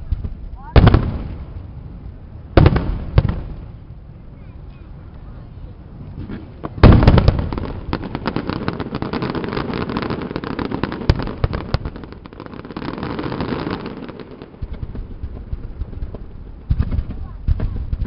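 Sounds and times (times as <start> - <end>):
fireworks crackling and popping: 0.0 - 18.0
sharp firework bangs: 2.5 - 3.8, 6.1 - 18.0.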